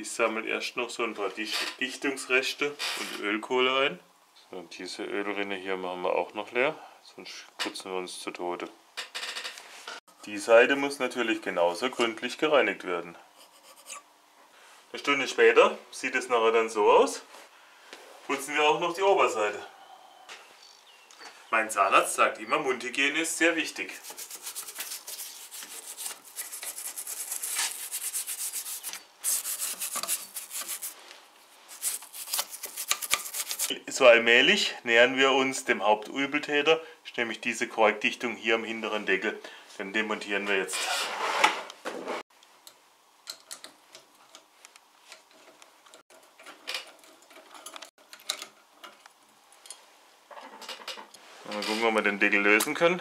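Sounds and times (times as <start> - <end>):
toothbrush scrubbing metal: 13.4 - 14.0, 23.9 - 31.0, 31.7 - 33.7.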